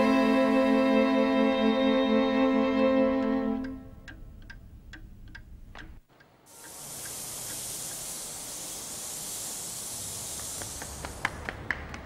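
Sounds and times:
steady high hiss: 0.0 - 11.6
faint clicks: 3.6 - 8.2.

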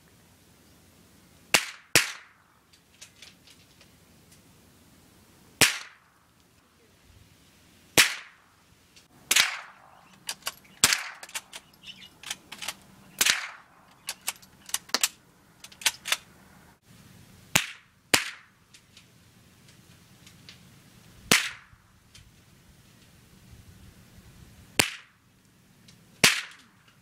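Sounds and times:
rifle shots: 1.5 - 2.4, 5.6 - 6.1, 8.0 - 8.4, 9.3 - 11.6, 12.2 - 14.2, 17.5 - 18.5, 21.3 - 21.7, 26.2 - 26.7.

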